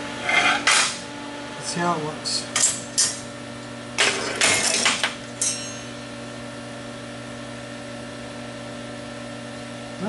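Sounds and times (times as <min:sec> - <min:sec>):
steady hum: 0:00.0 - 0:08.4
metal parts clattering on steel: 0:04.0 - 0:05.9
ringing metal clink: 0:05.4 - 0:06.0.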